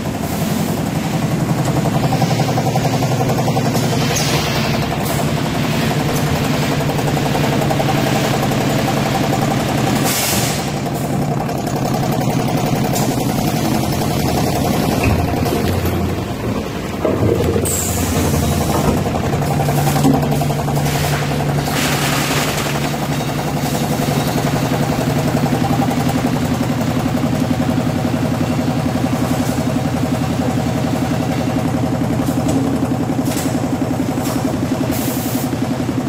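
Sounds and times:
packing machine drone: 0:00.0 - 0:36.0.

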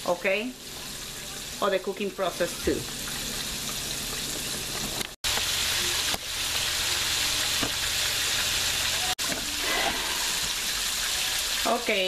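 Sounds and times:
chicken deep-frying in oil: 0:00.0 - 0:12.0.

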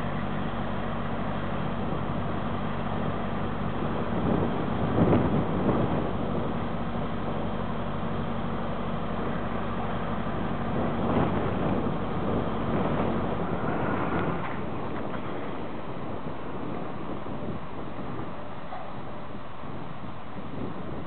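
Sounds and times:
distant truck engine running: 0:00.0 - 0:21.0
wind noise on microphone: 0:00.0 - 0:21.0.

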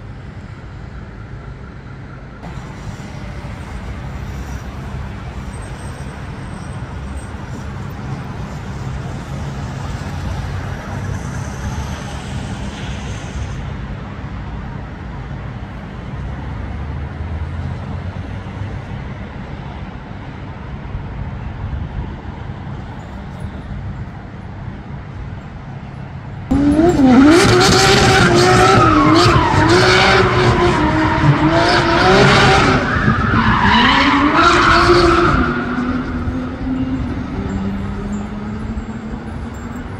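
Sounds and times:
city traffic rumble: 0:00.0 - 0:39.9
tires skidding on asphalt: 0:26.5 - 0:39.0
car engines revving: 0:26.5 - 0:39.9.

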